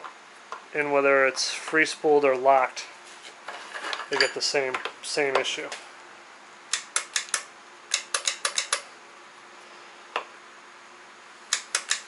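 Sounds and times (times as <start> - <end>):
winch solenoids clicking: 6.7 - 8.8, 11.5 - 12.0.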